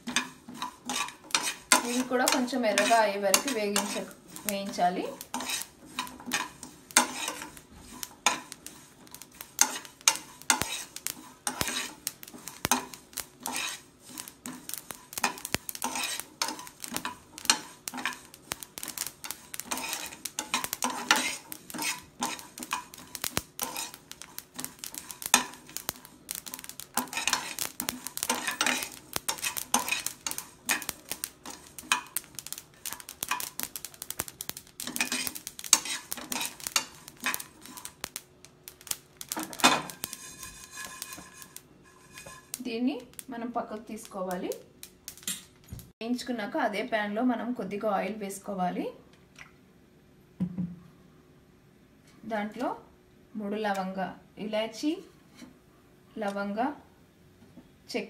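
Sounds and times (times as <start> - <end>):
ladle scraping seeds in a pan: 0.0 - 45.4.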